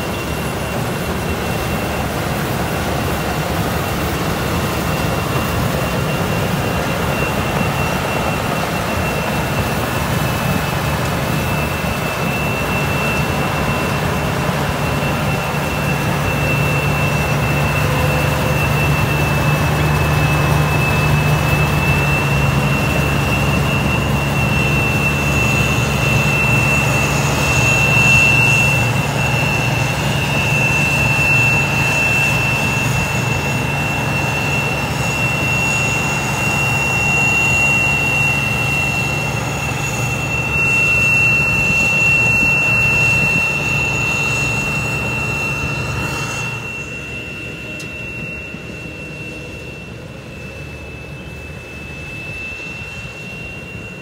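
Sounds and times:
combine harvester engine whining: 0.0s - 54.0s.

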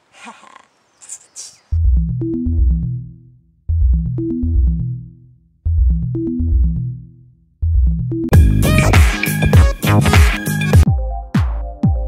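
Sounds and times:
electronic synthesizer music: 8.3s - 12.0s.

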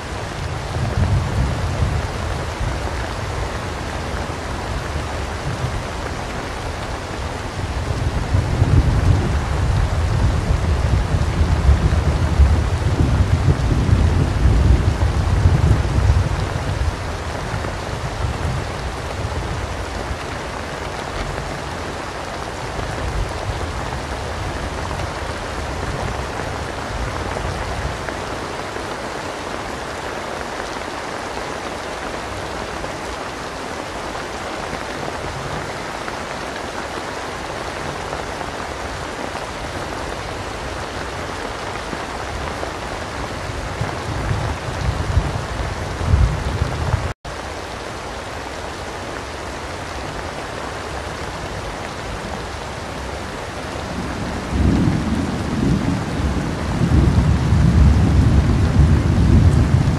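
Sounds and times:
heavy rain: 0.0s - 59.9s
thunder rumbling: 0.1s - 21.8s, 37.4s - 47.2s, 51.2s - 59.9s.

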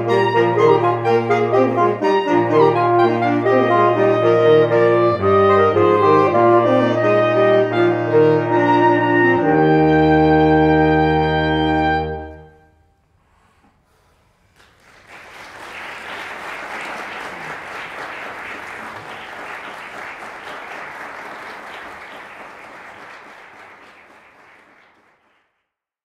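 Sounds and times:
audience applauding: 14.5s - 25.6s.

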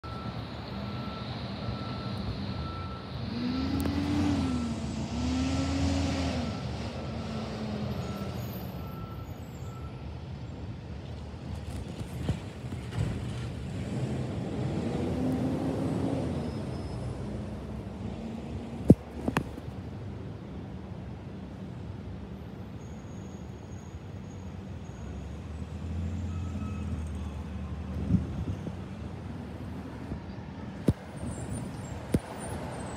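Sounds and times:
heavy vehicle engine: 0.0s - 32.9s
traffic noise: 0.0s - 32.9s.

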